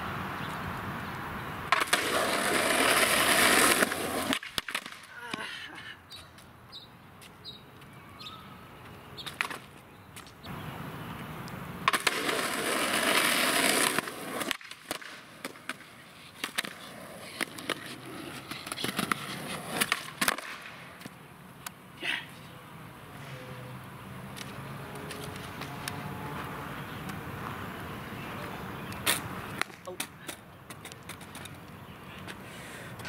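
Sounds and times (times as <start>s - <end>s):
skateboard wheels rolling on pavement: 0.0s - 5.4s, 6.1s - 33.0s
skateboard clacking on ground: 1.7s - 5.4s, 9.2s - 10.3s, 11.8s - 21.8s, 28.9s - 32.4s.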